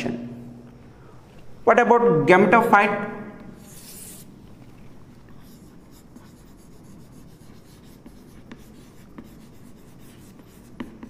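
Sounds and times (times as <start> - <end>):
chalk scratching on chalkboard: 3.6 - 4.4, 5.2 - 11.0.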